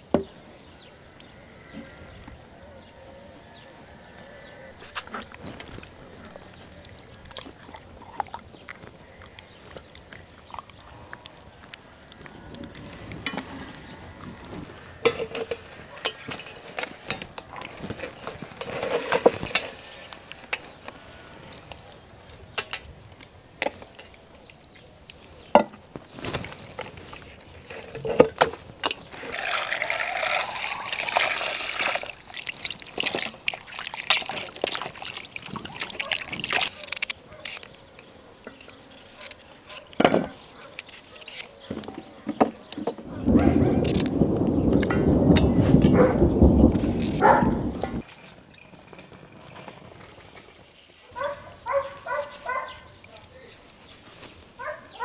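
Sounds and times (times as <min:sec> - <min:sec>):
hands squelching wet marinade: 0:01.1 - 0:15.1, 0:29.0 - 0:37.7
water running into a metal bowl: 0:29.1 - 0:37.0.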